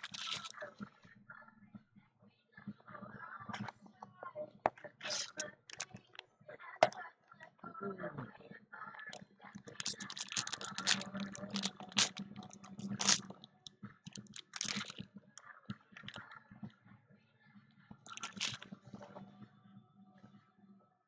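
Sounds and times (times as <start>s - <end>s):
trading cards clicking and rustling: 0.0s - 0.6s, 4.7s - 6.2s, 9.7s - 13.4s, 14.1s - 15.0s, 18.1s - 18.7s.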